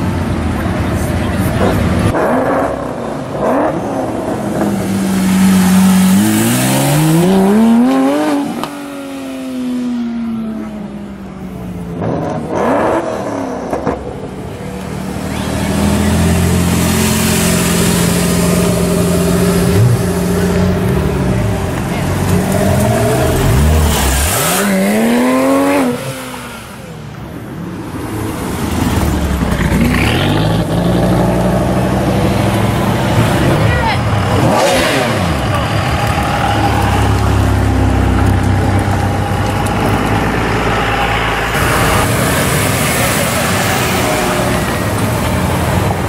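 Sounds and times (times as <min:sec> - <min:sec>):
sports car engines revving past: 0:01.5 - 0:11.1, 0:11.8 - 0:46.0.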